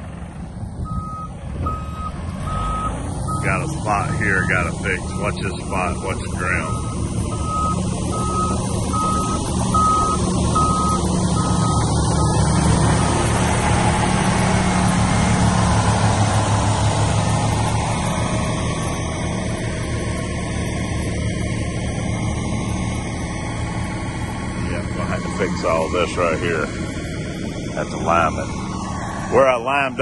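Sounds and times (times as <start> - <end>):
diesel truck engine running: 0.0 - 30.0
reverse alarm beeping: 0.9 - 12.5.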